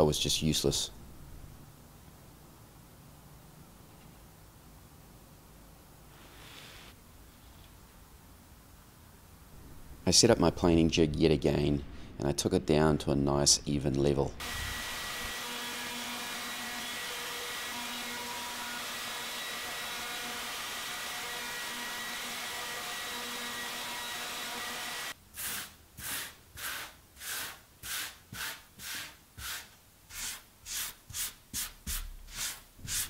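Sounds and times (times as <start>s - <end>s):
electric router running: 14.4s - 25.1s
hand rubbing wood: 26.0s - 33.0s.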